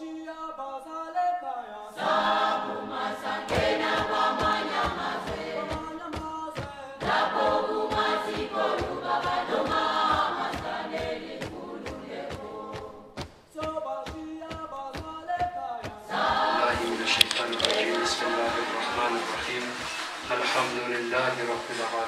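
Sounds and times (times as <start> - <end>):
choir singing: 1.8 - 6.2, 7.0 - 13.2, 16.0 - 22.0.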